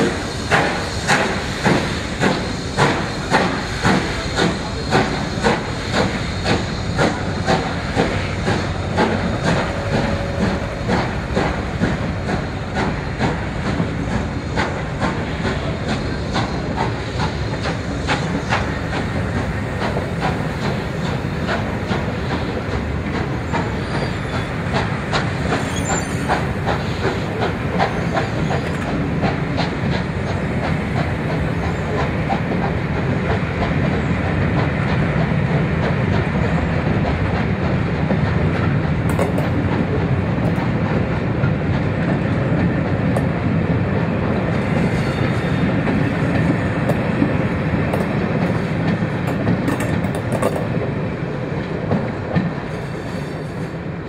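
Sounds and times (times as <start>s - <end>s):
steam train passing: 0.0s - 54.0s
wheels clicking over rail joints: 44.4s - 50.9s.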